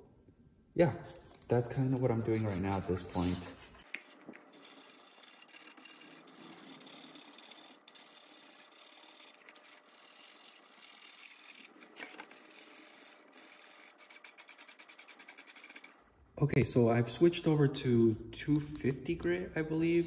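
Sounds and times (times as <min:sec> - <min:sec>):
sandpaper scratching wood: 0:01.0 - 0:15.9.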